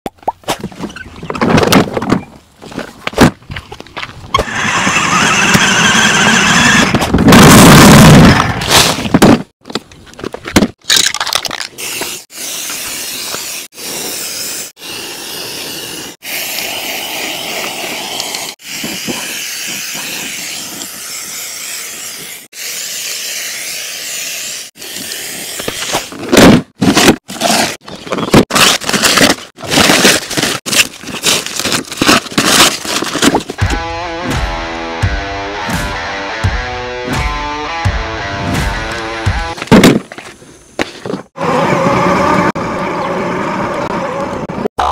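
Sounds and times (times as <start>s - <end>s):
plastic film and paper tearing: 28.4s - 33.6s.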